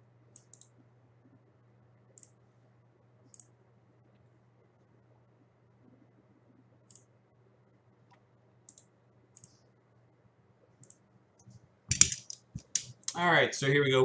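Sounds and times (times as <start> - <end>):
steady low hum: 0.0 - 14.0
computer mouse clicks: 0.3 - 0.8, 2.2 - 2.4, 3.2 - 4.3, 6.8 - 7.1, 8.0 - 9.7, 10.8 - 13.2.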